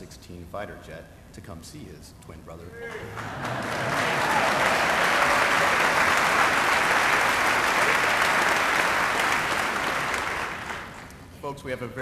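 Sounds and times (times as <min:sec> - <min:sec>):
audience applauding: 0:02.9 - 0:11.2.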